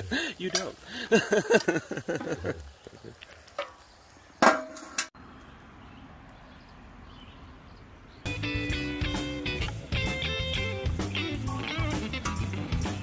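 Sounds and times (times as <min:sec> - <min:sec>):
faint outdoor background: 0:00.0 - 0:13.0
metal grill lid clanging: 0:04.4 - 0:05.1
guitar music: 0:08.3 - 0:13.0.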